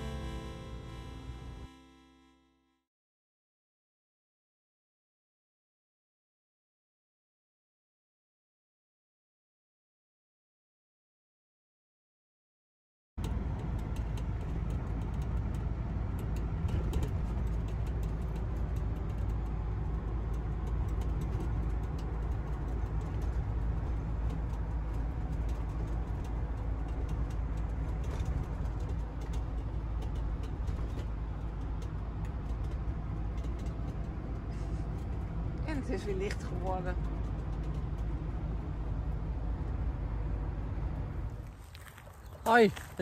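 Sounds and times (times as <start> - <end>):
road and engine rumble: 0.0 - 2.7, 13.2 - 43.0
faint ticks and rattles: 13.2 - 39.8.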